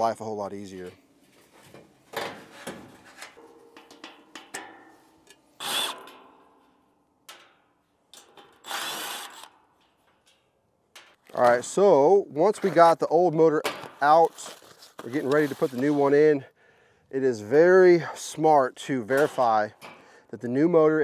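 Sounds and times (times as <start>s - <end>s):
cordless drill spinning: 5.6s - 6.0s, 8.6s - 9.6s.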